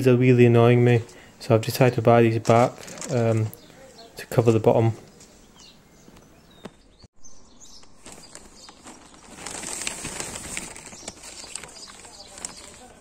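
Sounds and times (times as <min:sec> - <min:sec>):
small birds chirping: 0:01.0 - 0:13.0
crackly rustling with clicks: 0:02.3 - 0:04.0, 0:07.8 - 0:13.0.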